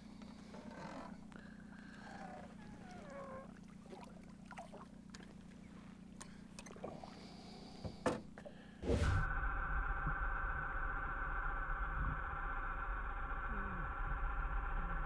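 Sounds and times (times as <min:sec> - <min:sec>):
water splashing against boat: 0:00.0 - 0:09.2
low steady hum: 0:00.0 - 0:15.0.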